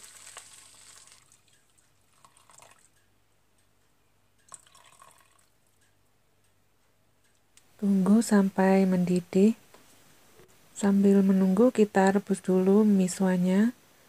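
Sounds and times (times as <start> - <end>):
faint drips and splashes: 0.0 - 3.1, 4.4 - 6.0.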